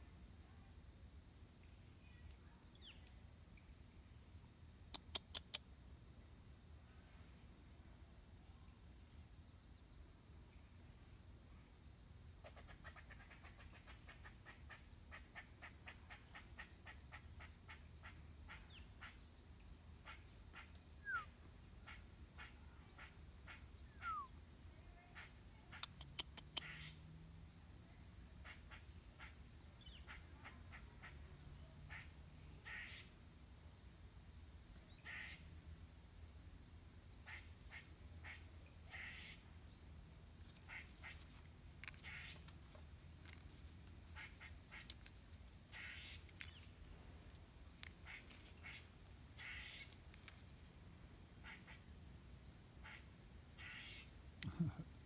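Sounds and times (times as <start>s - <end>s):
high insect drone: 26.6s - 55.0s.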